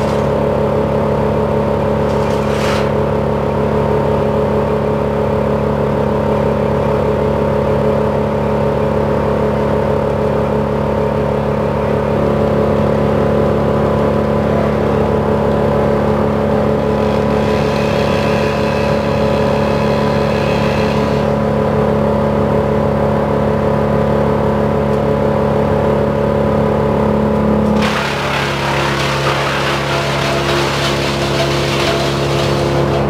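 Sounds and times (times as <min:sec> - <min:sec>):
truck engine running: 0:00.0 - 0:17.4.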